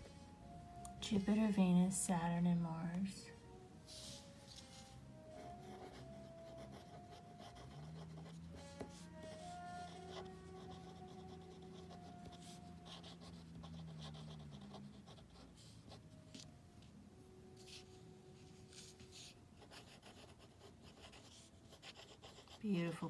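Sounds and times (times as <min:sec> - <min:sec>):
pen scratching on paper: 0:05.4 - 0:16.4, 0:17.6 - 0:22.9.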